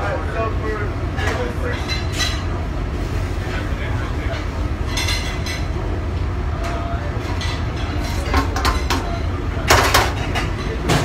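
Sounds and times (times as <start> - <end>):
low kitchen rumble: 0.0 - 11.0
dishes and pans clattering: 1.2 - 2.5, 4.2 - 5.8, 7.2 - 11.0.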